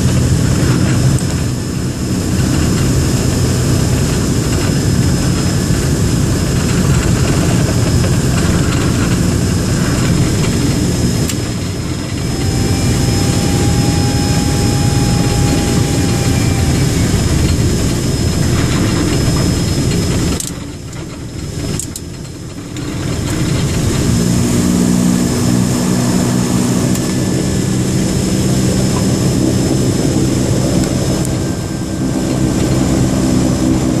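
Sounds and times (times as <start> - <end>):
low hum: 0.0 - 34.0
turboprop engines droning: 0.0 - 34.0.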